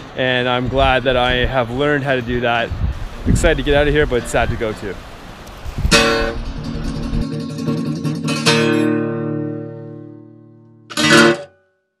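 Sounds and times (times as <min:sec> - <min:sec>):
acoustic guitar strumming: 0:05.7 - 0:11.9.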